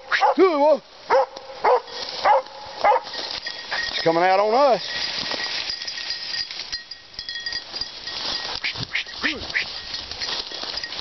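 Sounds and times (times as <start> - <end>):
dog barking: 0.1 - 0.4, 1.1 - 3.1.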